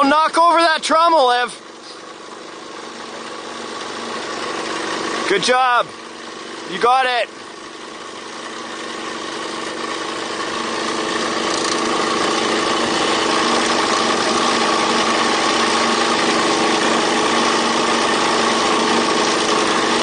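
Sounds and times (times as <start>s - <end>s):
toy truck motor whining drone: 7.8s - 20.0s.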